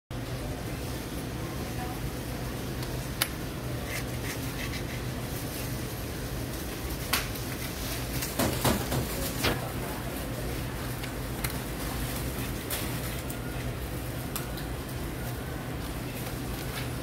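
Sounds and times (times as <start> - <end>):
spatula clicking and scraping: 3.8 - 5.1.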